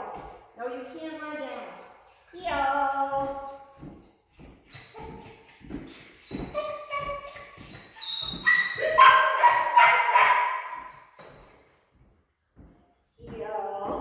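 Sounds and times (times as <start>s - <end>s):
dog whining: 6.2s - 9.7s.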